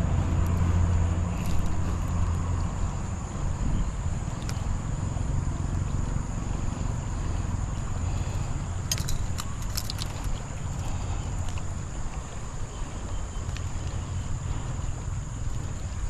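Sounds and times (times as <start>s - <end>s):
steady low rumble: 0.0s - 16.0s
fishing reel clicks: 8.8s - 10.9s.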